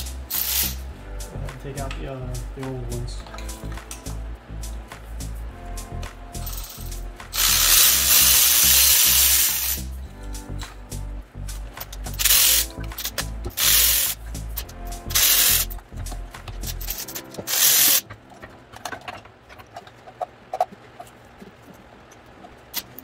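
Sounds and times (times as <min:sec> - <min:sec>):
electric ratchet whirring: 0:00.0 - 0:00.8, 0:06.4 - 0:09.9, 0:11.9 - 0:14.2, 0:15.1 - 0:15.8, 0:16.6 - 0:18.0.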